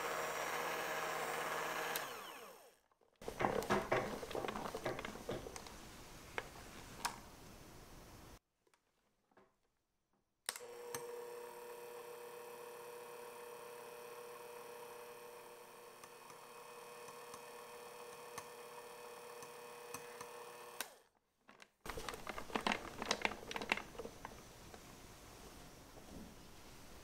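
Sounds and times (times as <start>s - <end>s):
electric hand mixer motor whine: 0.0s - 5.4s, 10.6s - 21.0s.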